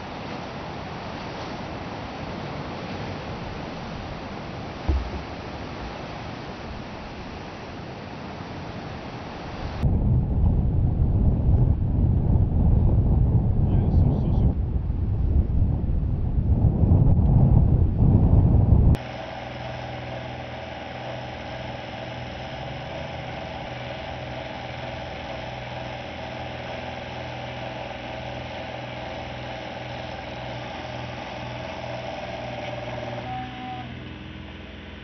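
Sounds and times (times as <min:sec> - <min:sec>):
engine idling hum: 0:03.3 - 0:07.7, 0:18.6 - 0:35.0
wind on microphone: 0:09.4 - 0:33.4.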